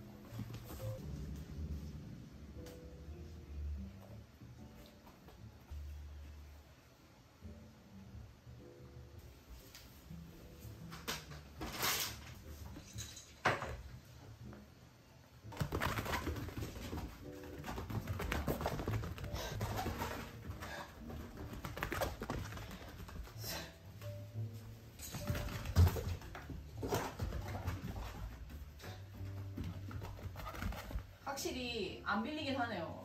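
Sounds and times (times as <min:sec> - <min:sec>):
paws pattering and scrabbling: 0:15.5 - 0:23.7, 0:25.0 - 0:31.2
animals scuffling on foam mat: 0:15.6 - 0:23.4, 0:25.2 - 0:31.2.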